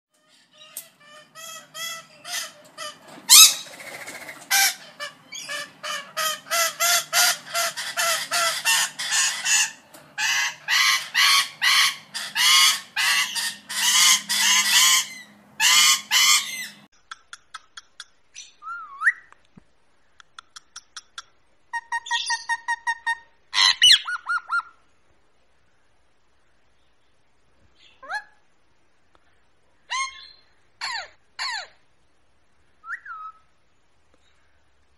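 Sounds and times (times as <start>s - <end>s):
parrot squawking: 0.3s - 16.9s, 21.7s - 24.8s, 29.9s - 31.8s
parrot clicks and chirps: 16.9s - 18.2s, 20.2s - 21.4s
parrot whistles: 32.8s - 33.4s.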